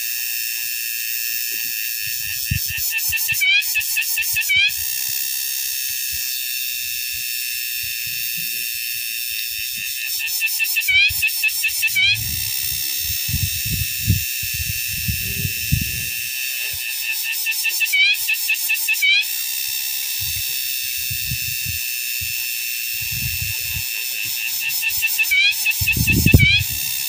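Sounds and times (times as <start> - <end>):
cicada buzzing: 0.0 - 27.0
wind thumps on microphone: 2.3 - 2.8, 12.1 - 16.1, 20.2 - 21.8, 23.0 - 23.8, 25.8 - 26.9.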